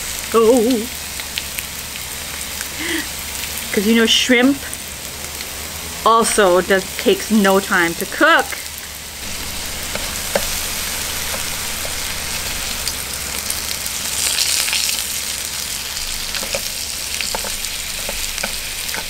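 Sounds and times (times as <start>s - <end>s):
meat sizzling on a grill plate: 0.0s - 19.0s
chopsticks clicking against pan: 16.4s - 19.0s.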